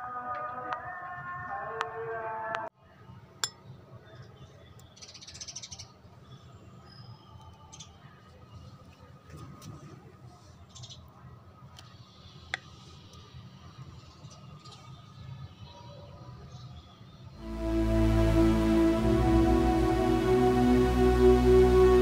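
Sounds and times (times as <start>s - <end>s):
background music: 17.4s - 22.0s.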